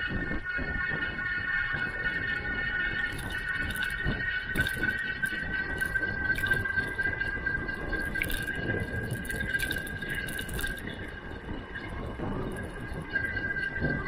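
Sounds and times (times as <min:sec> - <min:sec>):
steady high whine: 0:00.0 - 0:14.0
wind noise: 0:00.0 - 0:14.0.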